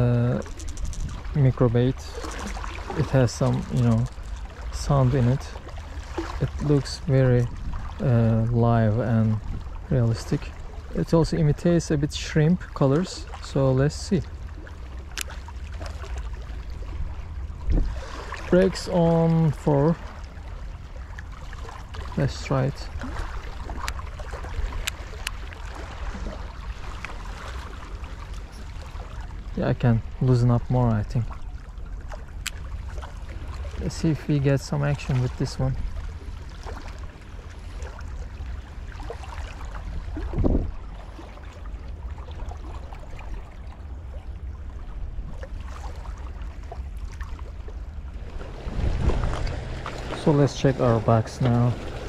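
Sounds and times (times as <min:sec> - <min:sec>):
wind buffeting microphone: 0:00.0 - 0:05.4, 0:06.1 - 0:10.2, 0:16.9 - 0:18.8, 0:38.9 - 0:41.0, 0:47.9 - 0:52.0
water lapping against rocks: 0:00.0 - 0:11.7, 0:12.4 - 0:52.0
sea water washing over rocks: 0:48.2 - 0:52.0.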